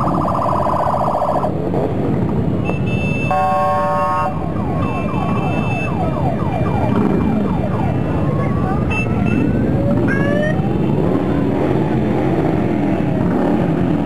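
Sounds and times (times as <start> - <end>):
rapid falling siren warble: 0.0 - 1.5, 4.1 - 12.1
motorcycle engines rumbling: 0.0 - 14.0
horns blaring: 2.6 - 6.2.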